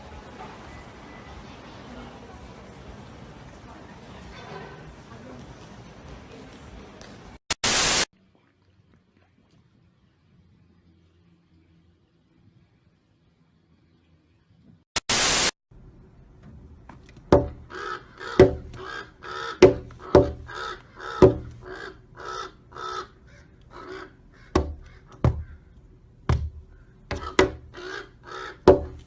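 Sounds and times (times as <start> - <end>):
burst of hiss: 7.6 - 8.1, 15.0 - 15.6
sharp knocks: 17.3 - 17.7, 18.4 - 18.8, 19.6 - 20.6, 21.2 - 21.7, 24.6 - 25.6, 26.3 - 27.8, 28.6 - 29.0
crow cawing: 17.6 - 25.7, 26.7 - 28.9.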